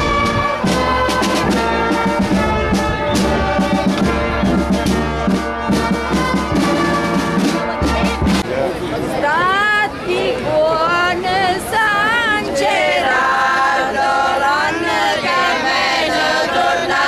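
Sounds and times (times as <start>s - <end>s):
drum strokes: 0.0s - 8.6s
marching brass band playing: 0.0s - 8.7s.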